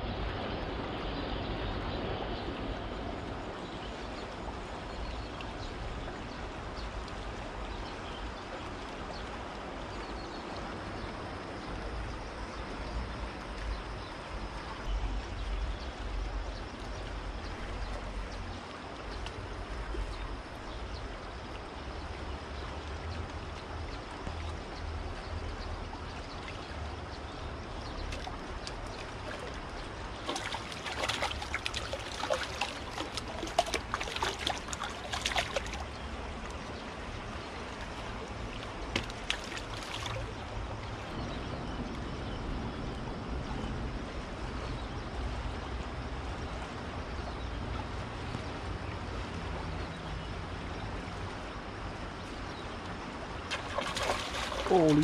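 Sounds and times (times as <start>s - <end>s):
river water flowing: 0.0s - 55.0s.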